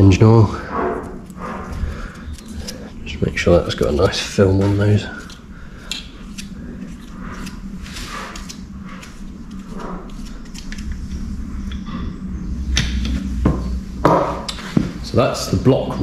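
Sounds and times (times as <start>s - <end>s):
steady low hum: 0.0s - 16.0s
gloved hands handling noises: 1.0s - 3.4s, 4.0s - 11.4s.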